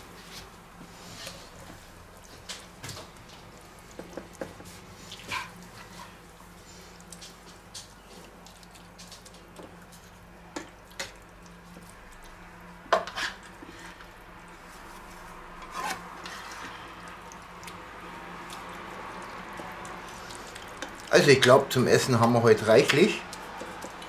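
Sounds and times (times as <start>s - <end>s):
ladle scraping filling: 8.0s - 24.0s.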